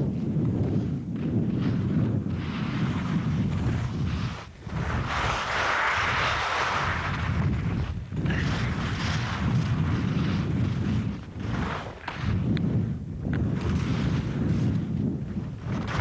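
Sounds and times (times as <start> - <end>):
wind buffeting microphone: 0.0 - 16.0
skis hissing over snow: 1.6 - 12.3.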